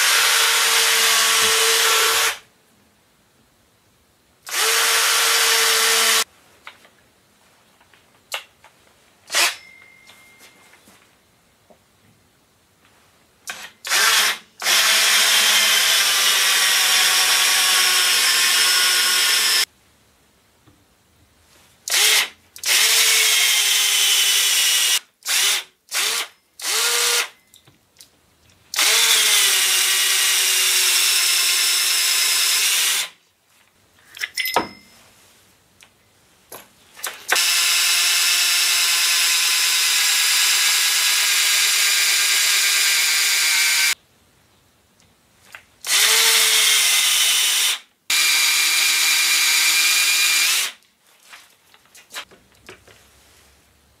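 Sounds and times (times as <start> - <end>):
cordless drill with hole saw: 0.0 - 2.4, 4.5 - 6.3, 9.3 - 9.6, 13.5 - 19.7, 21.9 - 27.4, 28.7 - 33.2, 37.3 - 44.0, 45.8 - 50.8.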